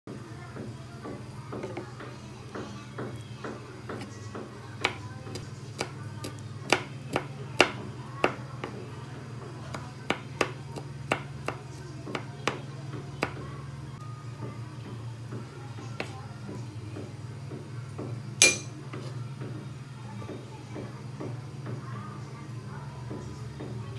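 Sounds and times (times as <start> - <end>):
knife chopping on cutting board: 3.1 - 8.8.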